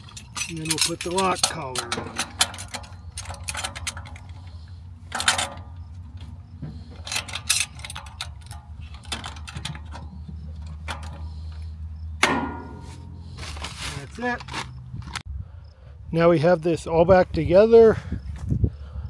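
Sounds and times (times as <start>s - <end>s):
metallic clicks and knocks: 0.0s - 13.3s
steady low hum: 1.4s - 13.8s.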